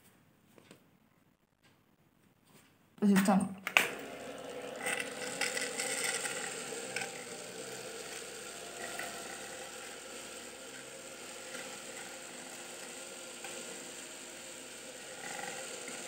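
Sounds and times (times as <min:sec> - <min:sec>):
mini vacuum motor running: 0:03.8 - 0:16.0.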